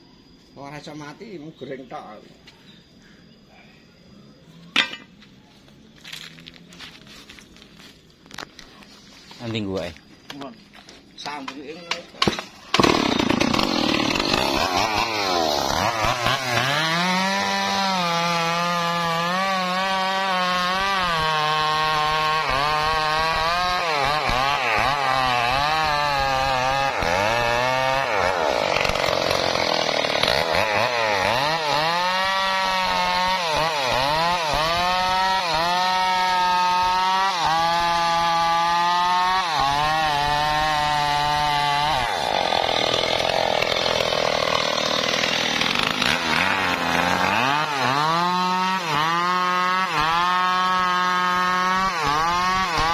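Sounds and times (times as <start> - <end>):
chainsaw cutting wood: 10.8 - 52.9.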